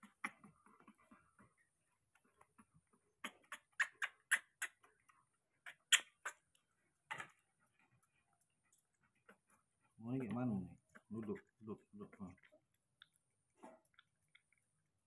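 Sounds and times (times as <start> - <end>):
baby monkeys sucking clicks: 2.2 - 7.5, 12.1 - 15.0.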